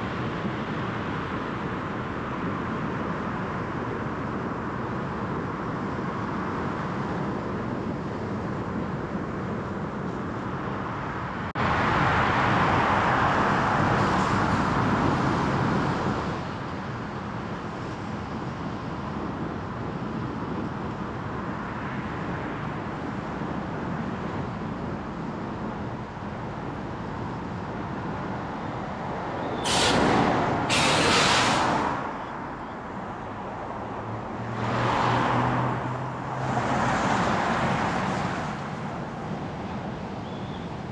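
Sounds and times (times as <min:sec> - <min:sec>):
car road and tyre noise: 0:00.0 - 0:40.9
short loud hisses: 0:29.6 - 0:31.9.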